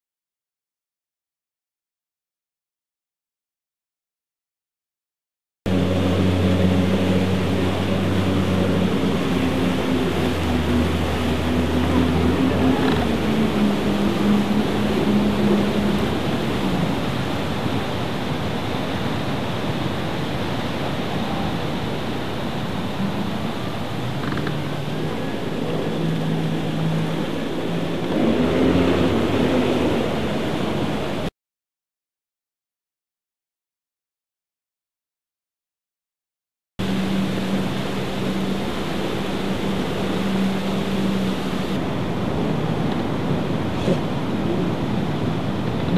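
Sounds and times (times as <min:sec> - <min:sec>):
churning water roaring: 0:05.7 - 0:31.3, 0:36.8 - 0:45.9
jet ski engine running: 0:05.7 - 0:31.3, 0:36.8 - 0:45.9.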